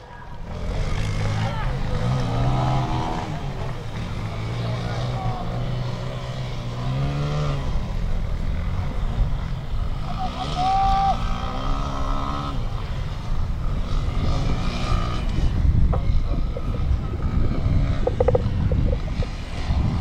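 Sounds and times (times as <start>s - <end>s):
motocross engine revving: 0.4s - 20.0s
wind rumble on microphone: 11.0s - 20.0s.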